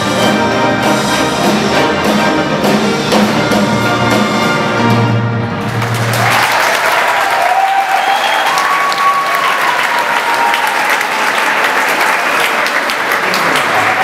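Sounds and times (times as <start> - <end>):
audience applauding: 5.6 - 14.0.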